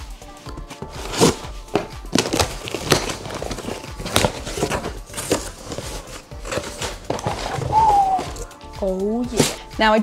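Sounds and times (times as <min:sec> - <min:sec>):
cardboard flaps rustling: 0:00.7 - 0:08.5
packing tape tearing: 0:00.8 - 0:08.5.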